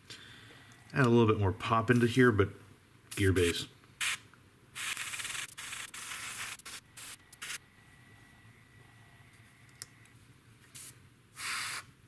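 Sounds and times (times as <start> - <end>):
airbrush spraying paint: 4.0 - 4.2, 4.8 - 7.6, 10.7 - 11.9.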